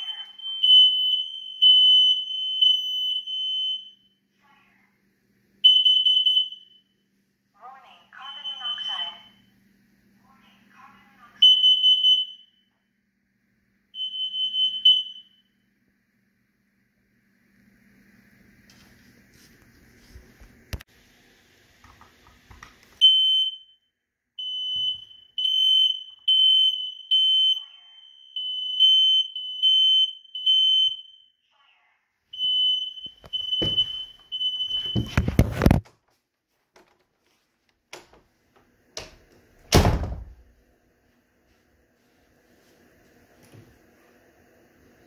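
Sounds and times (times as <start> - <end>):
smoke alarm beeping: 0.0 - 4.2, 5.6 - 7.0, 8.0 - 9.5, 11.4 - 12.8, 13.9 - 15.6, 23.0 - 31.4, 32.3 - 35.4.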